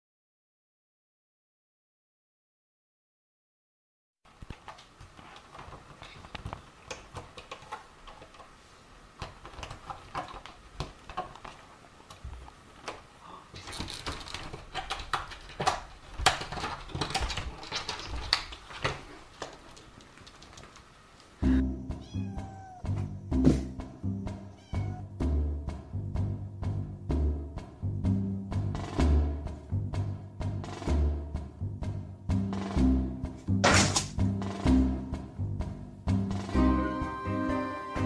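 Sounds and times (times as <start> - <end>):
background music: 21.4 - 38.0.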